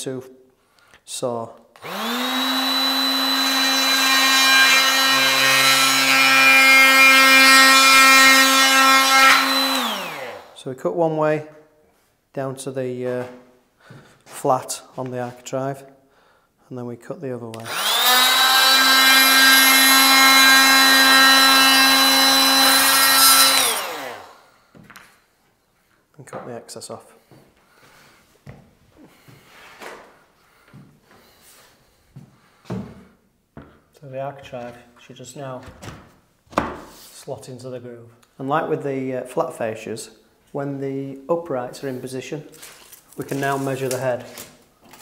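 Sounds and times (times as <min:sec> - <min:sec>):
multi-tool cutting wood: 0:01.8 - 0:10.6, 0:17.5 - 0:24.5
oscillating saw buzzing: 0:01.8 - 0:10.6, 0:17.6 - 0:24.5.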